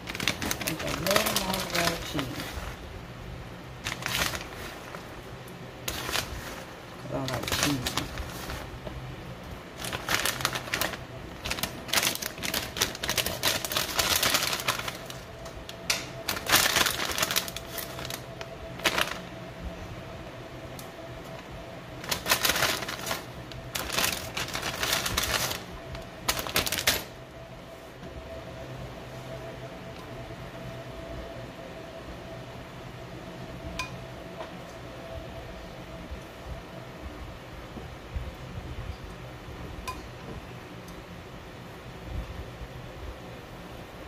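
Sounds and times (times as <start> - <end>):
plastic bag crinkling: 0.0 - 2.9, 3.8 - 5.2, 5.8 - 8.8, 9.7 - 19.4, 21.9 - 27.2
faint steady hum: 0.0 - 44.0.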